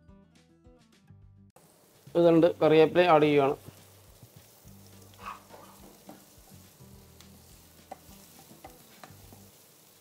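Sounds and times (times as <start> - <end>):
oil sizzling in a pan: 1.6 - 10.0
spatula knocking and scraping pan: 5.5 - 9.6.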